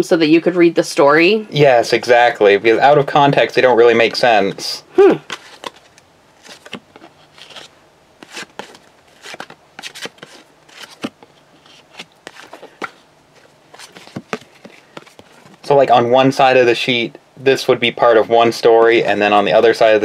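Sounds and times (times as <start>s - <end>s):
trading cards flipped by hand: 5.2s - 13.0s, 13.7s - 15.6s.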